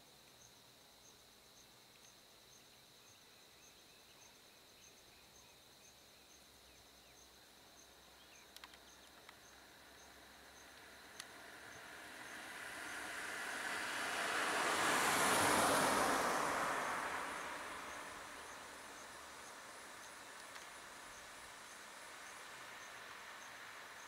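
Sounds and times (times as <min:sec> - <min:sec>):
faint insect trill: 0:00.0 - 0:24.0
faint clicks: 0:08.4 - 0:09.5, 0:10.7 - 0:11.4, 0:20.4 - 0:20.8.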